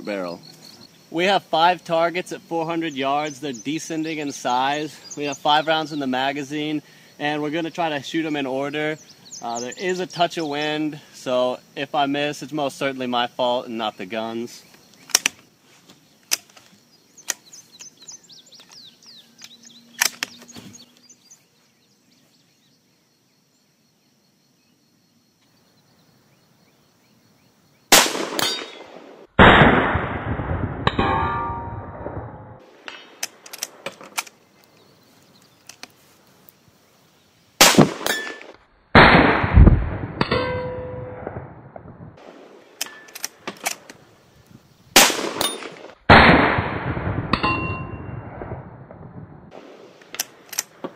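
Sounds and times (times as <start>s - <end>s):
rifle shots: 27.9s - 34.2s, 37.6s - 43.9s, 45.0s - 50.9s
steel target clanging: 28.4s - 28.9s, 30.9s - 32.0s, 40.2s - 41.2s, 47.4s - 48.0s.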